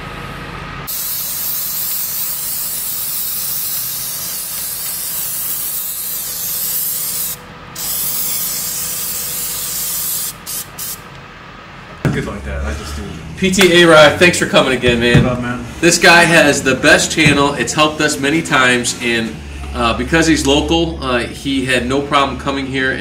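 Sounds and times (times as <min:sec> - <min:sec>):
spray gun hissing: 0:00.9 - 0:11.0.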